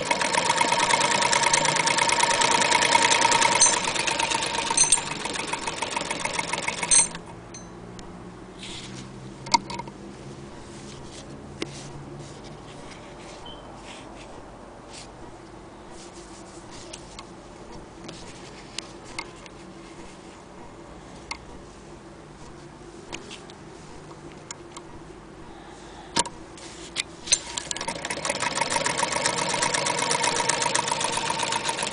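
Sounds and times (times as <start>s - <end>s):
sewing machine stitching: 0.0s - 7.3s, 27.3s - 31.9s.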